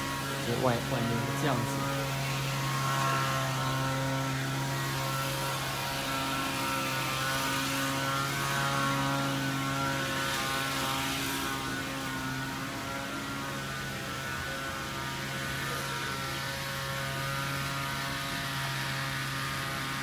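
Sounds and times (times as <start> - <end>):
mechanical hum: 0.0 - 20.0.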